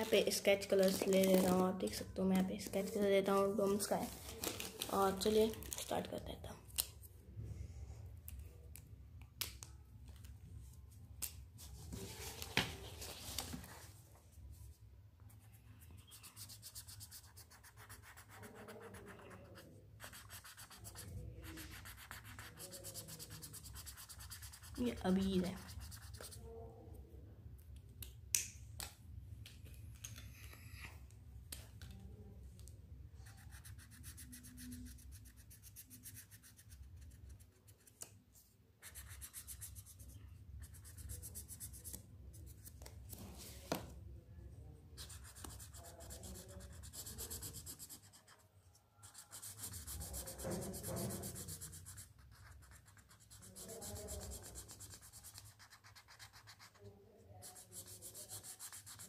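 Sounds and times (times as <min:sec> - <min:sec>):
pens scratching on paper: 0:15.3 - 0:26.4, 0:33.2 - 0:38.1, 0:45.0 - 0:48.4, 0:49.0 - 0:56.8, 0:57.4 - 0:59.0.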